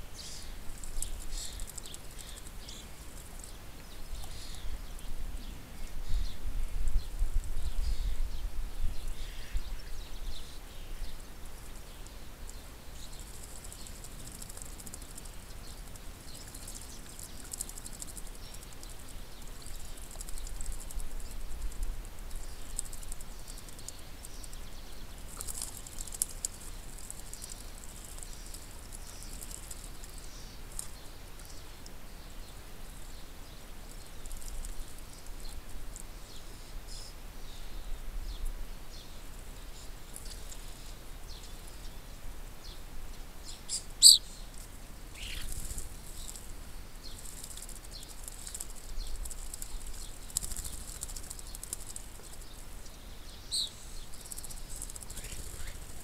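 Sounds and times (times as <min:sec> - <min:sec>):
wing flutters: 0:13.0 - 0:31.1, 0:44.0 - 0:52.6, 0:53.5 - 0:56.0
birds splashing in water: 0:45.4 - 0:52.5.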